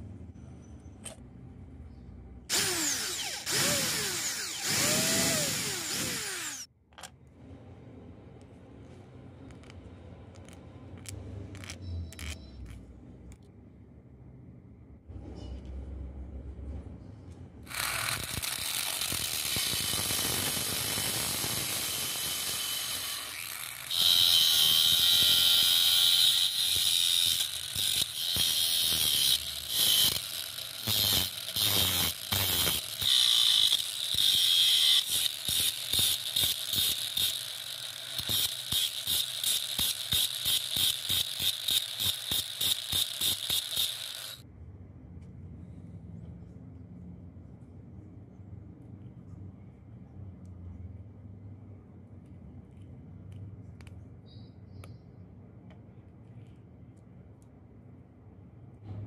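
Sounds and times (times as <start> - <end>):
angle grinder running: 2.5 - 6.7, 17.7 - 44.4
grinder cutting metal bolt: 2.5 - 6.7, 17.7 - 44.4.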